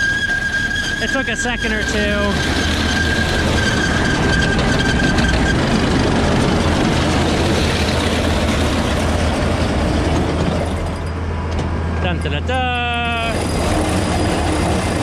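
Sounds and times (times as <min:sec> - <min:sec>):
high squeal: 0:00.0 - 0:08.0, 0:12.8 - 0:15.0
tractor and baler running: 0:00.0 - 0:15.0.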